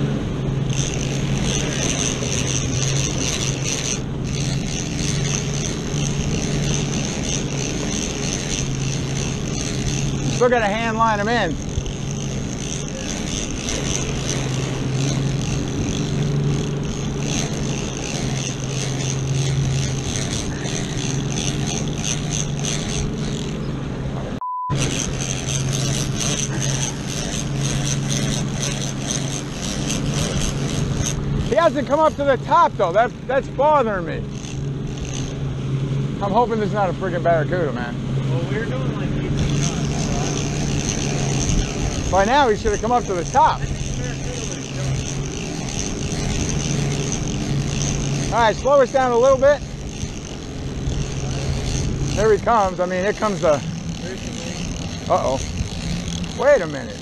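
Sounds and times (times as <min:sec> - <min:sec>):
boat engine humming: 0:00.0 - 0:57.0
wind: 0:00.0 - 0:57.0
censor bleep: 0:24.4 - 0:24.8.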